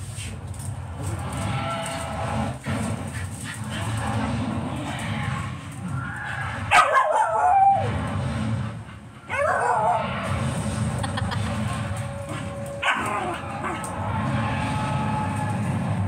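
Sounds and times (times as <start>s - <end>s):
dog yipping: 6.7s - 7.9s.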